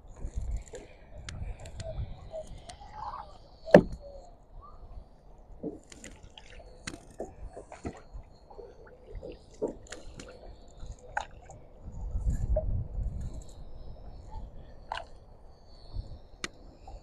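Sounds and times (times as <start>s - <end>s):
paddle strokes splashing water: 5.6s - 11.6s.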